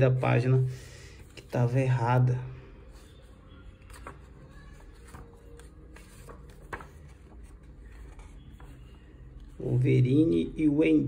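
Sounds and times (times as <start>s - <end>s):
paper pages rustling: 2.9s - 9.8s.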